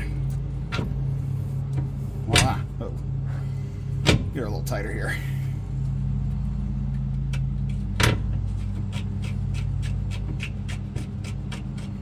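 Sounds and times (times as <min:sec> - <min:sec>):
lawnmower engines droning: 0:00.0 - 0:12.0
metal tow hook clunk: 0:02.2 - 0:02.8, 0:04.0 - 0:04.4, 0:07.9 - 0:08.4.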